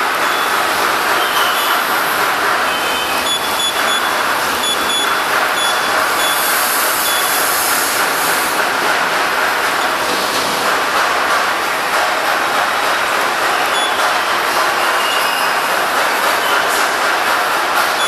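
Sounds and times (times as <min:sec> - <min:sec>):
loud steady noise: 0:00.0 - 0:18.0
short high keypad beeps: 0:02.8 - 0:07.3.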